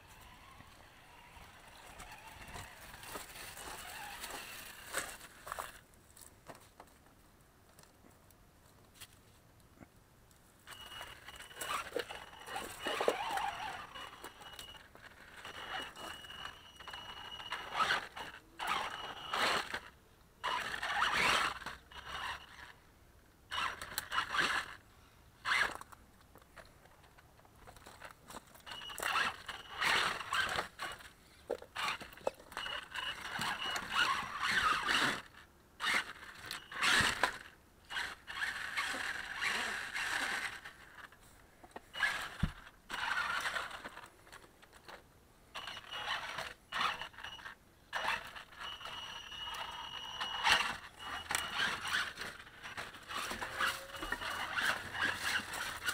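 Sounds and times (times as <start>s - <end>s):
toy car motor whining: 0.0s - 5.8s, 10.7s - 22.8s, 23.5s - 24.8s, 25.4s - 25.9s, 28.6s - 55.9s
tyres crunching over wood and leaves: 1.8s - 6.7s, 51.3s - 55.9s.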